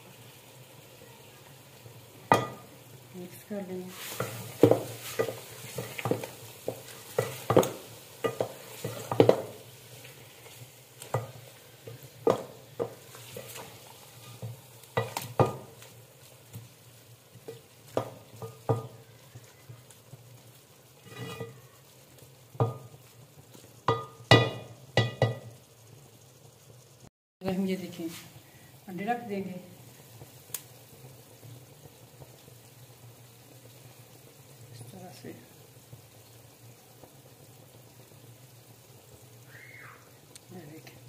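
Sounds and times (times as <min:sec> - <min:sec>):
faint sizzle: 0:00.0 - 0:41.0
wooden spatula scraping metal pot: 0:03.9 - 0:15.6, 0:21.0 - 0:21.7
spatula knocking against pot: 0:04.2 - 0:09.5, 0:12.2 - 0:13.0, 0:23.9 - 0:25.5.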